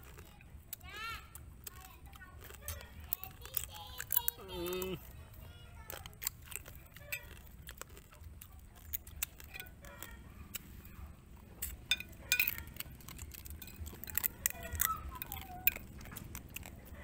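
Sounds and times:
chewing mouth clicks: 0:00.0 - 0:17.0
metal spoon clinking on plate: 0:11.6 - 0:15.9.

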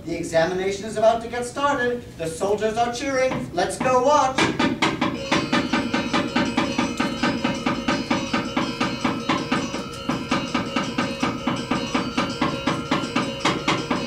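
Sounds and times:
fast percussive strikes: 0:02.8 - 0:14.0
ringing metallic tones: 0:04.0 - 0:14.0.

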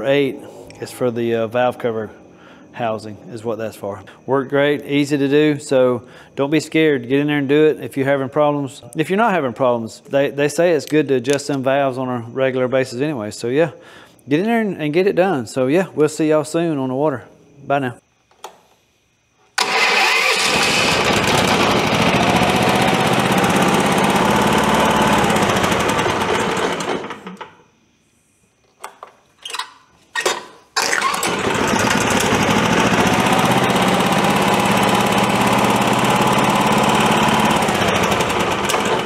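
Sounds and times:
engine running: 0:19.6 - 0:27.2, 0:31.0 - 0:39.0.

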